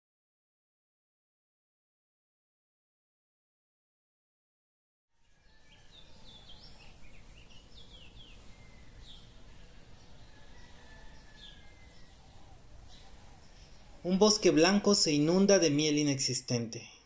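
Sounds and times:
small birds chirping: 0:05.2 - 0:16.9.

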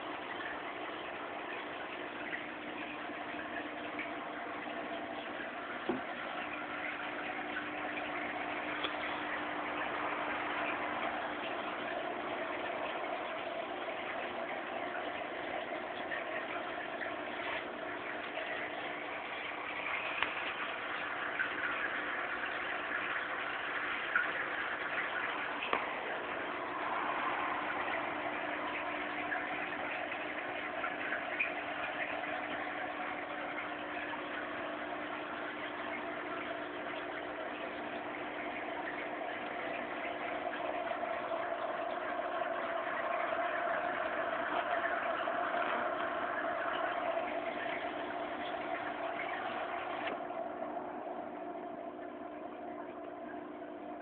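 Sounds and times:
aquarium equipment humming: 0:00.0 - 0:54.0.

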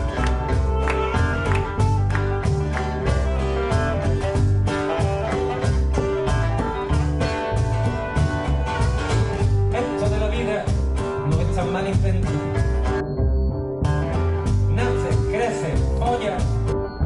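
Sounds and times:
saxophone: 0:00.0 - 0:09.0
percussion beat: 0:00.0 - 0:13.0, 0:13.8 - 0:17.0
acoustic guitars strumming: 0:00.0 - 0:17.0
double bass: 0:00.0 - 0:17.0.

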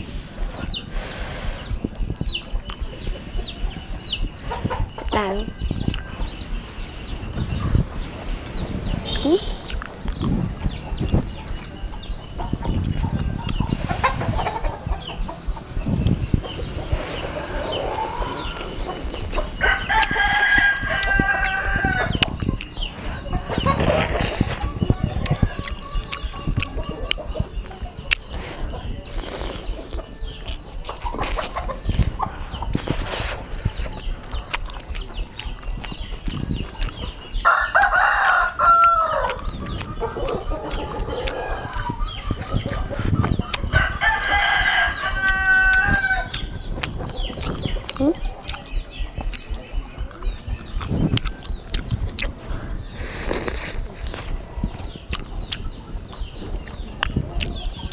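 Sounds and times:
wet chewing and lip-smacking: 0:01.6 - 0:03.2, 0:05.4 - 0:06.5, 0:09.2 - 0:12.2, 0:12.8 - 0:22.9, 0:23.6 - 0:43.9, 0:45.7 - 0:57.9
rooster crowing: 0:19.6 - 0:22.1, 0:37.4 - 0:39.3, 0:43.7 - 0:46.3.

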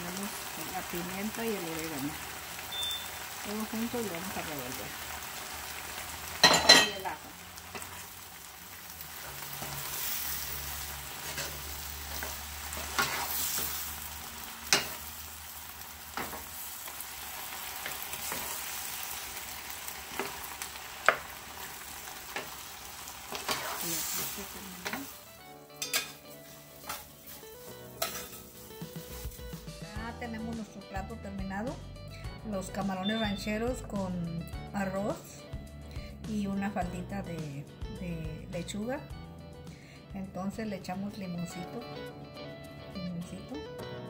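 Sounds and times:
background music: 0:00.0 - 0:16.6, 0:17.5 - 0:44.0
food sizzling in a frying pan: 0:00.0 - 0:31.0, 0:31.7 - 0:35.2.

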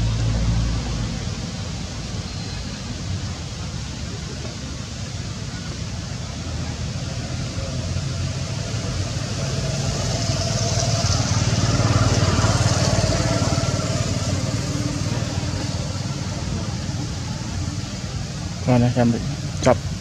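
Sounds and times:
vehicle engine running: 0:04.9 - 0:20.0.

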